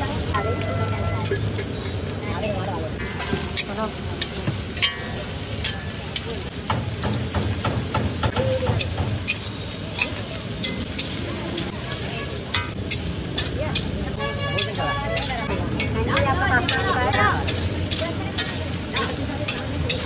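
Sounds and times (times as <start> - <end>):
food sizzling: 0.0 - 20.0
metal spatula scraping wok: 2.9 - 6.5, 8.7 - 20.0.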